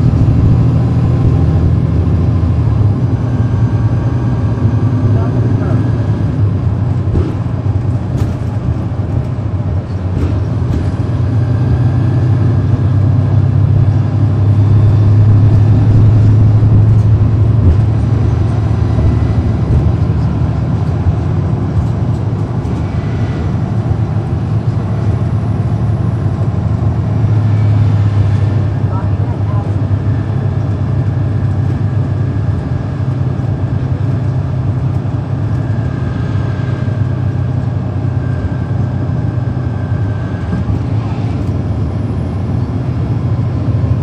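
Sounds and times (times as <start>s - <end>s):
bus diesel engine droning: 0.0s - 44.0s.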